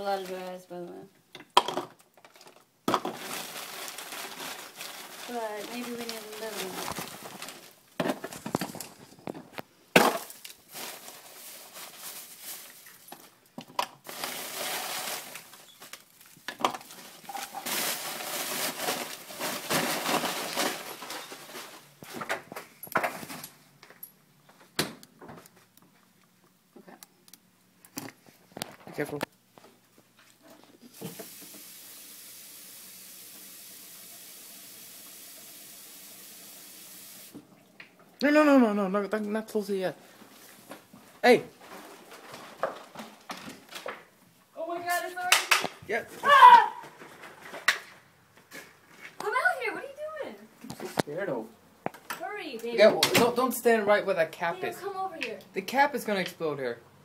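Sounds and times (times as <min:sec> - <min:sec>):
plastic bag crinkling: 0:02.2 - 0:22.5, 0:40.1 - 0:44.1
faucet running water: 0:30.9 - 0:37.4.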